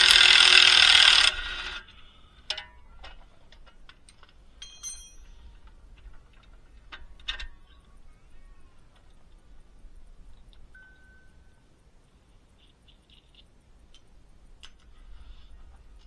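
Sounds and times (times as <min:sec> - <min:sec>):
power tool: 0:00.0 - 0:01.9
metallic clicks of tools: 0:03.5 - 0:05.8.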